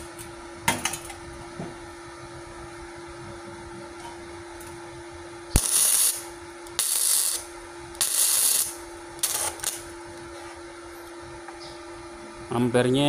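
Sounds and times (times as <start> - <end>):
steady low hum: 0.0 - 13.0
welder arc crackling: 5.5 - 10.3.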